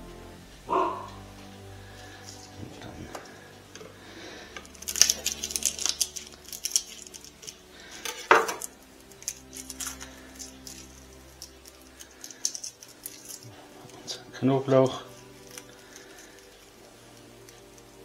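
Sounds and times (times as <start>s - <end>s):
garlic skins crackling: 1.0s - 18.0s.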